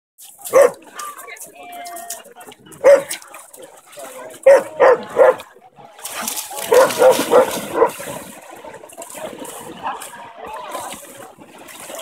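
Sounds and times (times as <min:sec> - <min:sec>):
water splashing: 0:00.2 - 0:12.0
dog barking: 0:00.5 - 0:00.8, 0:02.8 - 0:03.1, 0:04.4 - 0:05.4, 0:06.6 - 0:08.0.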